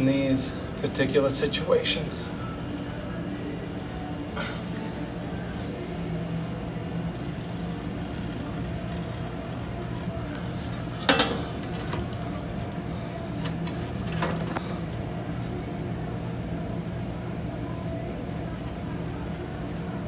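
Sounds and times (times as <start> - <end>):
steady low hum: 0.0 - 20.0
utility knife cutting vinyl: 2.4 - 12.8.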